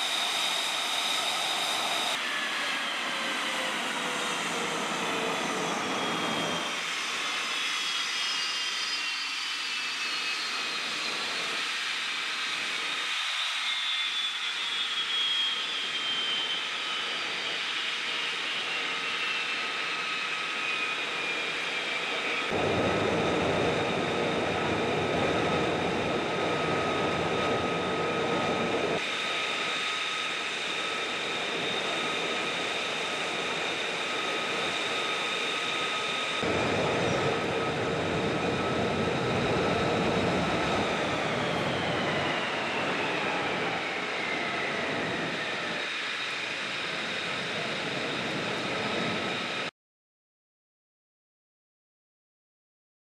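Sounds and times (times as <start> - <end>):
jet engine rushing hiss: 20.1 - 49.7.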